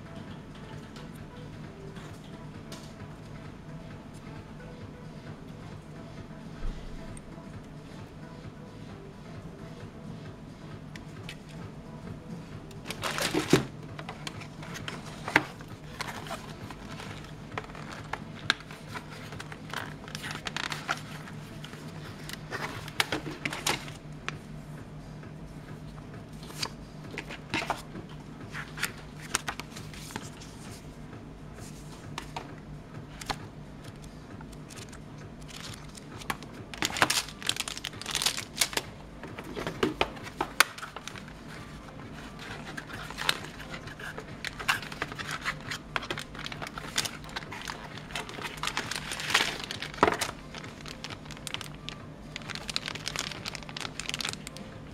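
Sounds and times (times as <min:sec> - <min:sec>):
steady low hum: 0:00.0 - 0:54.9
paper and cardboard rustling: 0:12.8 - 0:24.0, 0:26.4 - 0:27.9, 0:28.5 - 0:30.9, 0:34.6 - 0:54.9
plastic crinkling: 0:12.8 - 0:24.0, 0:34.6 - 0:54.9.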